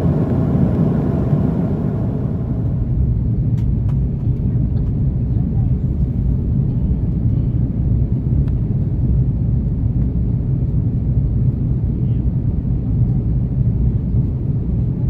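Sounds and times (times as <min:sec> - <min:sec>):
aircraft engine and airflow rumble: 0:00.0 - 0:15.0.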